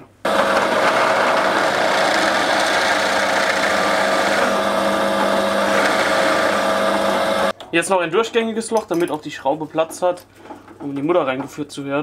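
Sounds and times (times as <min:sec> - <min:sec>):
drill bit cutting wood: 0:00.3 - 0:07.5
drill press motor hum: 0:00.3 - 0:07.5.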